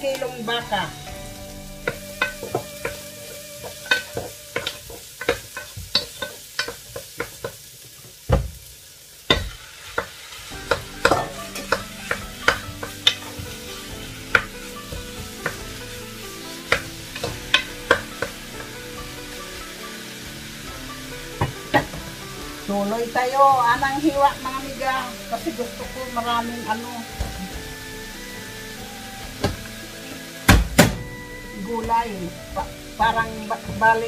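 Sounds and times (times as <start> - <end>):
meat sizzling in a pot: 0.0 - 34.0
spoon and bowl clacking on pot: 1.8 - 7.6, 9.3 - 13.6, 16.6 - 19.4
heavy thumps: 29.2 - 29.8, 30.5 - 34.0.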